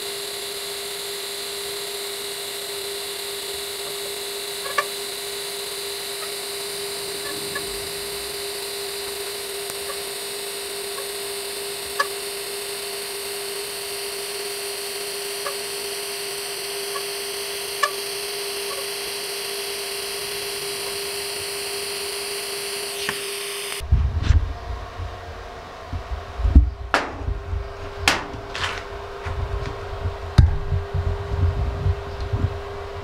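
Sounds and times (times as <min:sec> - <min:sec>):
welding arc buzzing hum: 0:00.0 - 0:33.0
welding ticks: 0:03.8 - 0:12.8.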